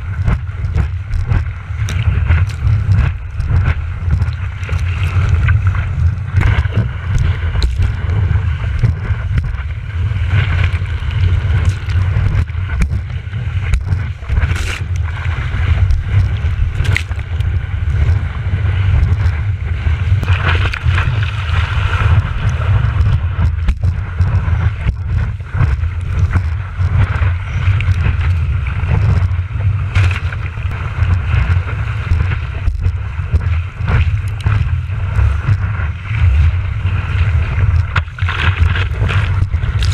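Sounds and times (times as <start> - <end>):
water splashes: 0.0 - 39.9
wind and water rumble: 0.0 - 39.9.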